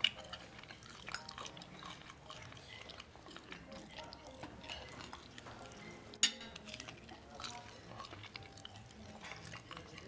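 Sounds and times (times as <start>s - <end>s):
person chewing food: 0.0s - 10.0s.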